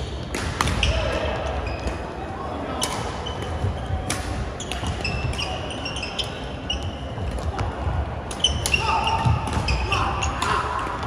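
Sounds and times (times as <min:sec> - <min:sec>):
sneakers squeaking on court floor: 0:00.0 - 0:02.2, 0:02.8 - 0:10.5
racket hitting shuttlecock: 0:00.2 - 0:00.9, 0:04.0 - 0:05.1.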